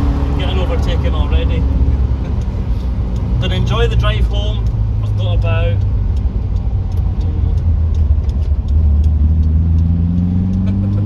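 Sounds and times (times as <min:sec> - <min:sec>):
van engine running: 0:00.0 - 0:11.0.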